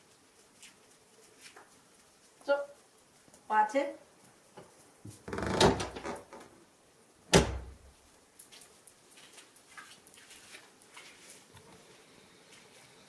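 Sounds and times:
door creaking: 5.1s - 6.6s, 7.3s - 7.8s
door shutting with a bang: 7.3s - 7.8s.

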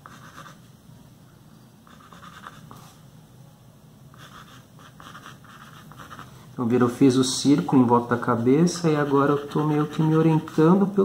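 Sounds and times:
pencil scratching on paper: 0.0s - 0.6s, 1.8s - 2.9s, 4.1s - 6.4s, 8.6s - 10.8s.

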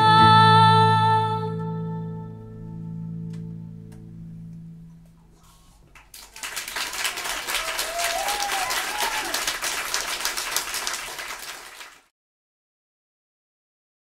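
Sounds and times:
audience applause: 6.0s - 12.1s.

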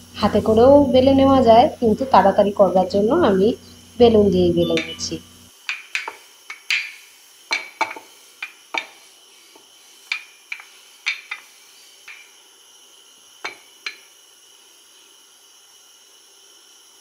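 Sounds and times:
rolling pin knocking on countertop: 7.5s - 9.0s.

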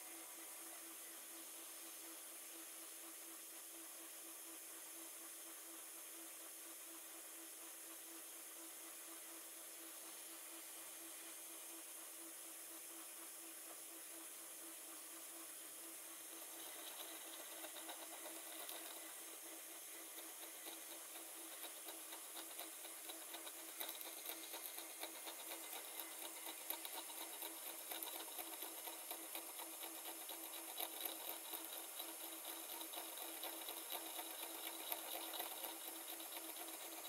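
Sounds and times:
milling machine spindle running: 16.2s - 37.0s
rapid ticks of cutting: 16.3s - 37.0s.

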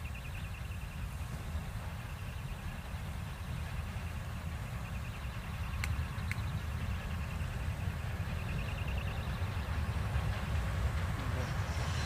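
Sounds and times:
diesel locomotive rumble: 0.0s - 12.0s
sharp clicks: 5.8s - 6.5s.

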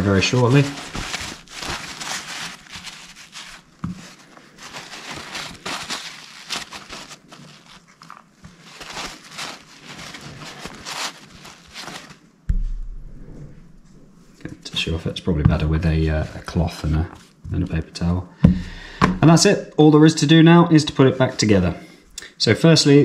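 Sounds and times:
paper towel rustling: 0.0s - 21.7s
low thump: 12.5s - 14.5s, 18.4s - 19.3s.

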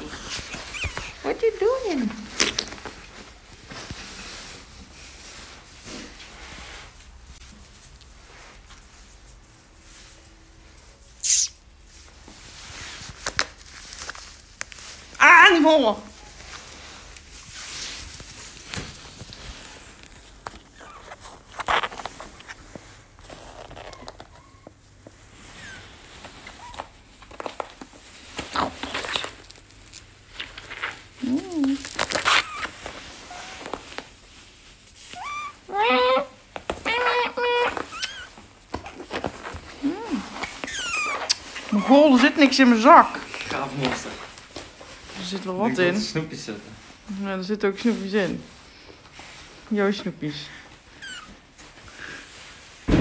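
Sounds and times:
rustling of coat fabric: 0.0s - 52.9s
faint short chirps: 11.2s - 11.6s
fabric rustling: 11.8s - 35.6s.

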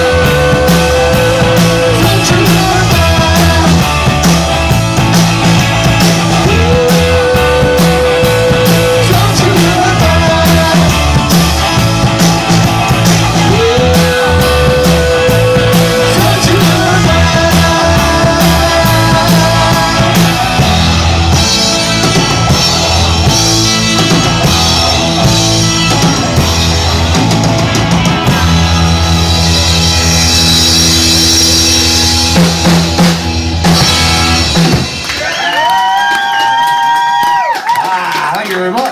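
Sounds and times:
person singing: 0.0s - 4.2s, 6.0s - 11.9s, 12.6s - 25.0s
electric bass: 0.0s - 36.3s
electric guitar: 0.0s - 37.7s
drum kit: 0.0s - 37.9s.

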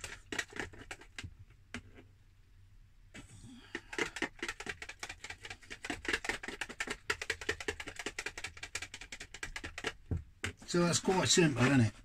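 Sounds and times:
whisk clicking against bowl: 3.9s - 10.0s.

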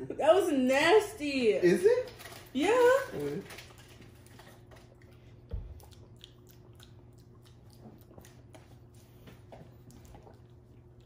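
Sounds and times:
wet mouth clicks and smacking: 4.9s - 8.6s.

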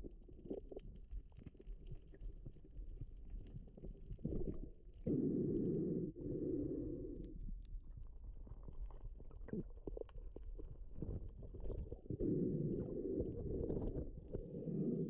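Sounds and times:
muffled underwater rush: 0.0s - 15.0s.

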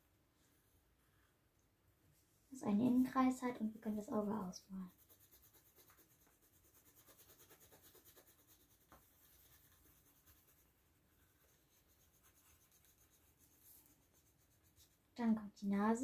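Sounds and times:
pencil scribbling on paper: 3.7s - 15.0s.

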